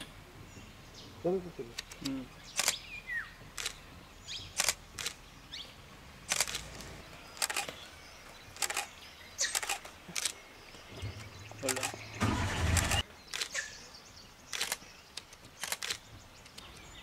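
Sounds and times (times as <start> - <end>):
camera shutters clicking: 1.7 - 2.8, 3.6 - 3.8, 4.6 - 5.2, 6.3 - 7.8, 8.6 - 10.4, 11.6 - 13.7, 14.5 - 16.1.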